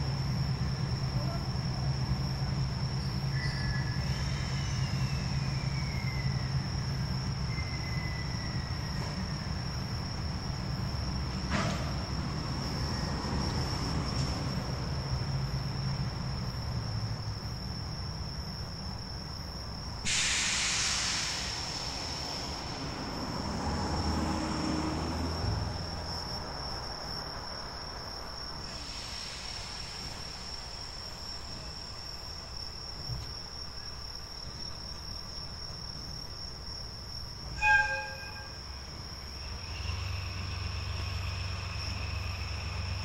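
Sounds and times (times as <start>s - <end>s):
insects chirping: 0.0s - 43.0s
compressed air hiss: 20.0s - 22.9s, 28.6s - 31.0s
train horn blast: 37.6s - 38.6s.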